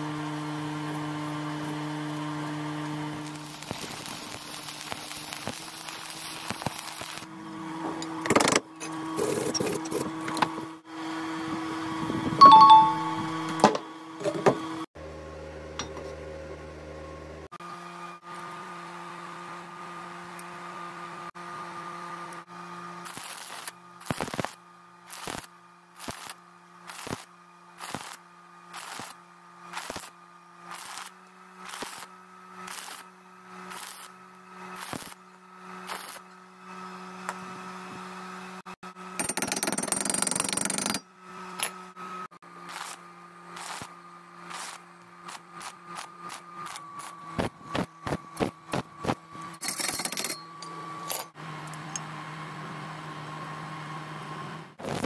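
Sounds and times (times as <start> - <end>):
welding arc crackling: 3.2 - 7.3, 23.0 - 35.2, 35.8 - 36.3, 42.7 - 43.0, 43.6 - 49.2, 54.8 - 55.0.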